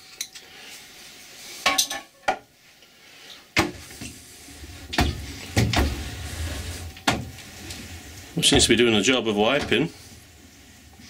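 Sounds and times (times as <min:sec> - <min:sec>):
low hum: 0:03.8 - 0:11.0.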